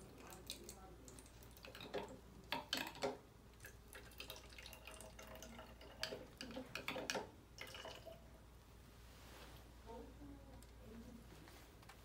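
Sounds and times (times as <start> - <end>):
water trickling into bottle: 2.6 - 8.2.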